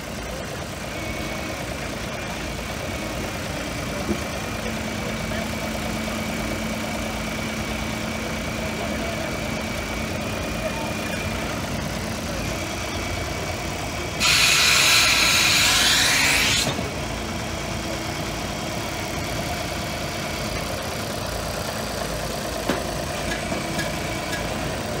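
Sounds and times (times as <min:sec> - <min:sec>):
machine engine idling: 0:00.0 - 0:25.0.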